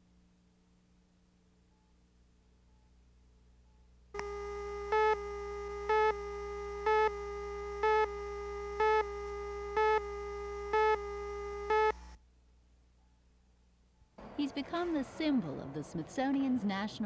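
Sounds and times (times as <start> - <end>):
steady buzzy test tone: 0.0 - 12.2
countdown beeps: 4.2 - 12.0.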